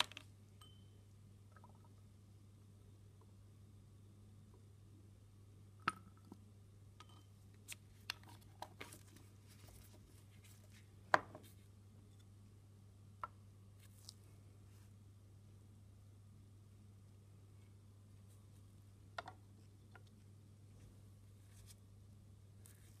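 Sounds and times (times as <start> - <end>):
steady low hum: 0.0 - 23.0.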